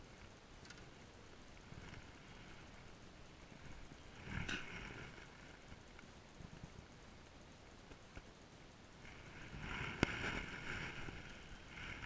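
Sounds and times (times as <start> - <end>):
faint click: 0.2 - 0.9.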